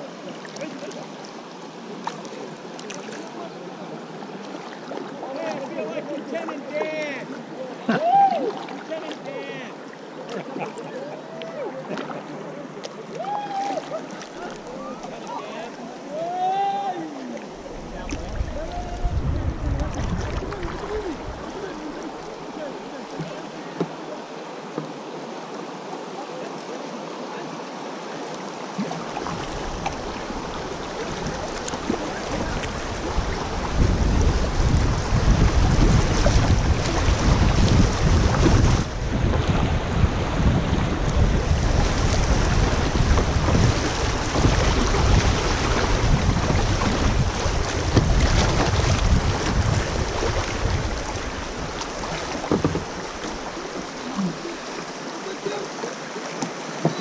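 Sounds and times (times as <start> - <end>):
river water rushing and splashing: 0.0 - 57.0
wind rumble on microphone: 17.7 - 21.7, 29.3 - 53.4.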